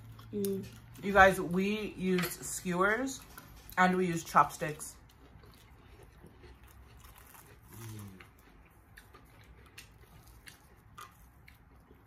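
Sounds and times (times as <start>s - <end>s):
person chewing: 0.0s - 1.0s, 3.2s - 3.8s, 4.6s - 12.0s.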